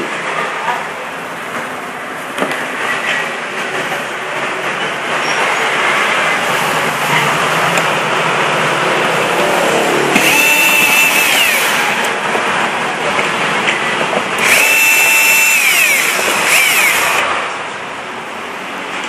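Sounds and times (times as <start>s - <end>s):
drill motor whine: 10.1s - 12.0s, 14.4s - 17.3s.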